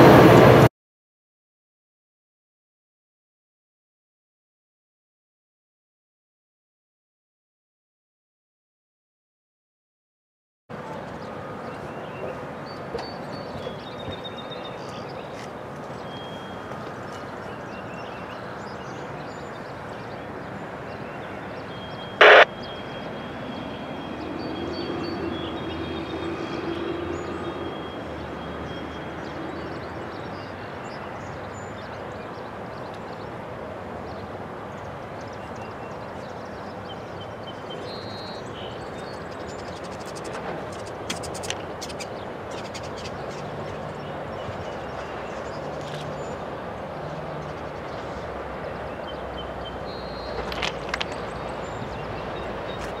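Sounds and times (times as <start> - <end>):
distant freight train rumble: 0.0 - 0.7
very loud burst: 22.2 - 22.5.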